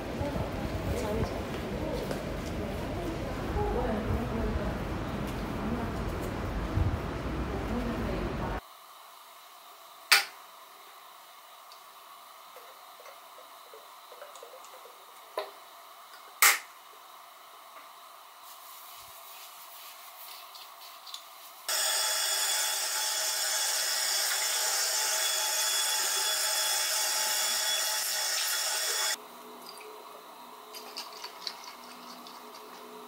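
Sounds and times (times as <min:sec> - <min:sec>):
faucet water running into sink: 0:28.0 - 0:29.9, 0:30.7 - 0:32.9.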